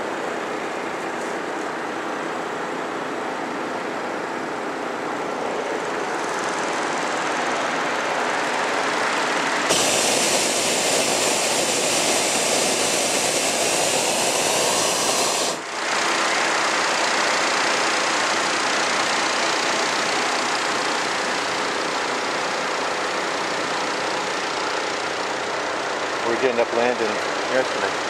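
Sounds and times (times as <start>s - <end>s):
propane burner blast: 7.9s - 28.0s.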